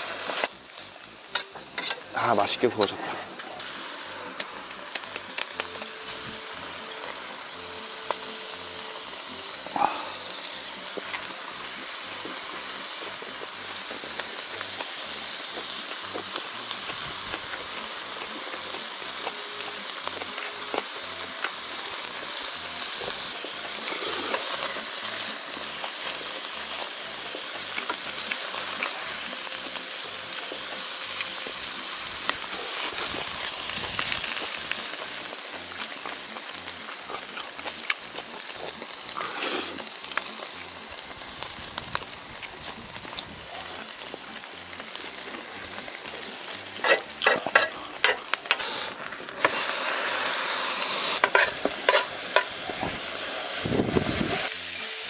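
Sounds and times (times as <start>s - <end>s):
meat sizzling on a grill: 0.0s - 55.0s.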